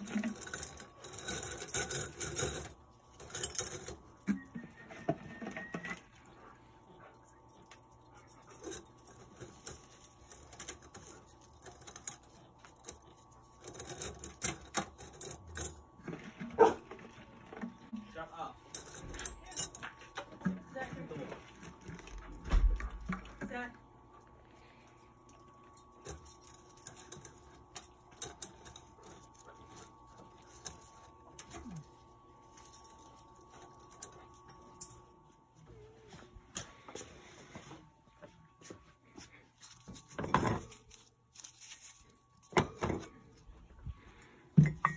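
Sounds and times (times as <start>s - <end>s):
metal scrap clinking and scraping: 0.0s - 6.0s
copper wire clinking and scraping: 0.0s - 6.3s, 7.3s - 17.9s, 18.6s - 23.6s, 24.6s - 35.4s, 38.6s - 44.9s
faint steady hum: 0.0s - 44.9s.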